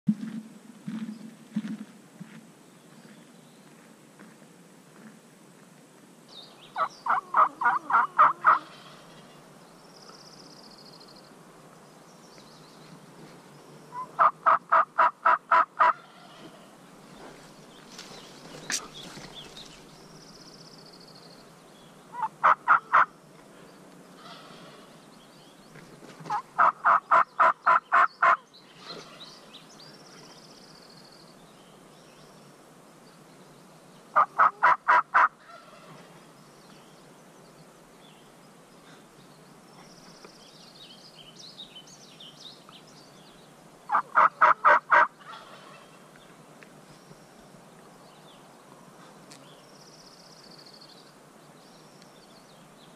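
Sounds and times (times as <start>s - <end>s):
faint songbird chirps: 6.3s - 14.4s, 15.8s - 34.5s, 35.4s - 52.9s
turkey yelping: 6.8s - 8.7s, 14.0s - 16.0s, 22.2s - 23.1s, 34.2s - 35.9s, 43.9s - 45.8s.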